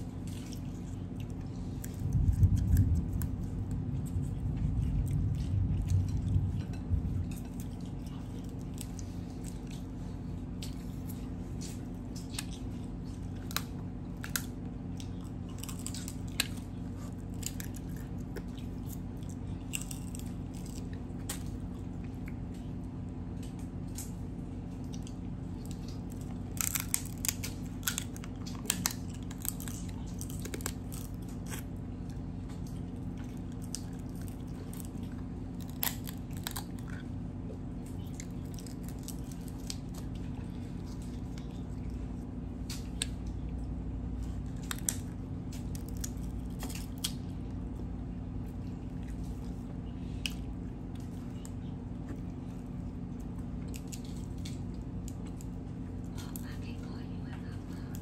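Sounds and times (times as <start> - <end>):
person chewing: 0.0 - 56.4
low hum: 0.0 - 58.0
crab shell cracking: 24.9 - 31.8, 32.6 - 37.0.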